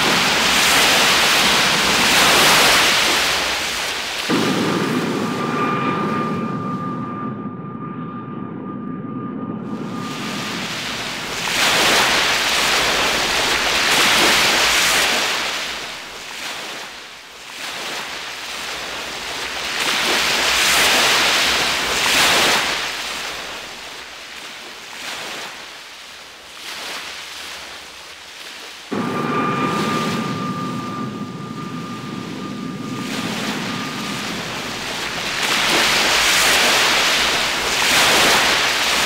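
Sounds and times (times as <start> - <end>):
wind buffeting microphone: 0.0 - 15.2, 28.9 - 39.0
low noise with high whine: 28.9 - 37.7.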